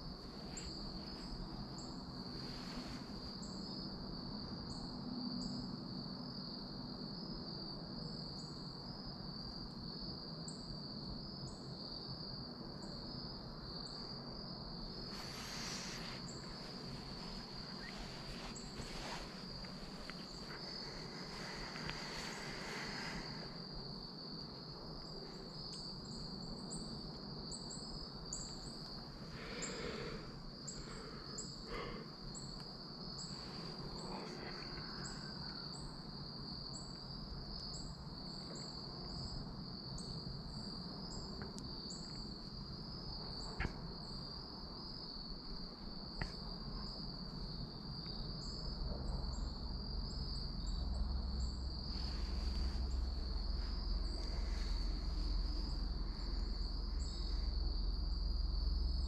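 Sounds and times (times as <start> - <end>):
high-pitched insect trill: 0.0 - 59.0
low rumble: 50.8 - 59.0.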